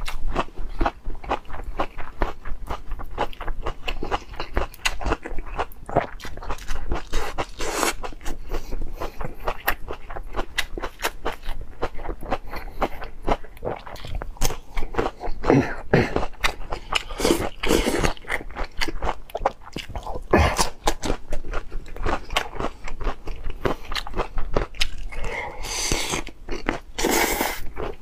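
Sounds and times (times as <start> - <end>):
crunchy chewing: 0.0 - 28.0.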